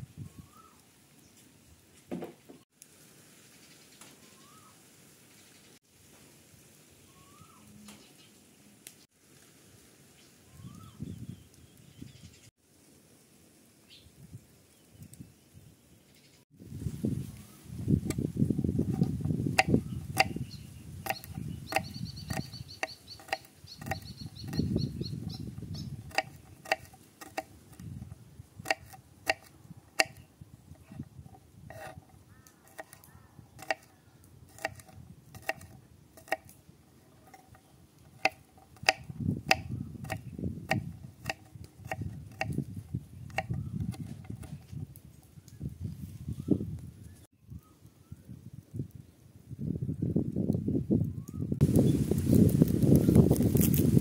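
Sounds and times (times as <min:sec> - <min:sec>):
knife chopping on wooden board: 0:18.9 - 0:20.4, 0:21.0 - 0:24.7, 0:25.6 - 0:30.2, 0:30.8 - 0:32.1, 0:32.7 - 0:33.0, 0:33.6 - 0:33.9, 0:34.5 - 0:36.5, 0:37.2 - 0:42.6, 0:43.3 - 0:44.7
bird trilling: 0:19.7 - 0:26.7.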